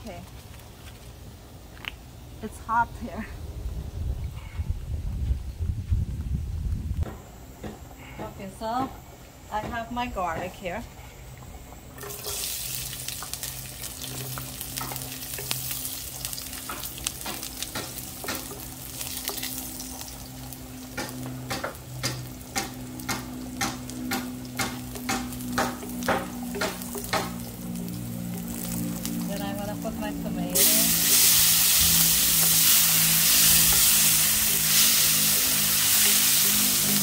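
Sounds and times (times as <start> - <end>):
garlic sizzling in hot oil: 12.0 - 37.0.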